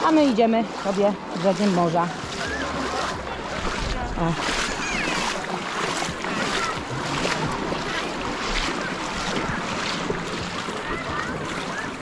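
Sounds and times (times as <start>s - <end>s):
shallow water washing: 0.0s - 12.0s
faint distant voices: 1.3s - 12.0s.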